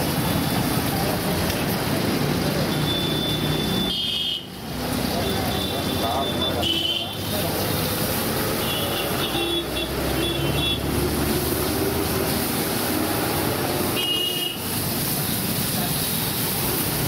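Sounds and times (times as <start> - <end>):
traffic: 0.0 - 17.0
vehicle horn tooting: 2.9 - 4.5, 5.6 - 7.2, 8.6 - 10.8, 13.9 - 14.6.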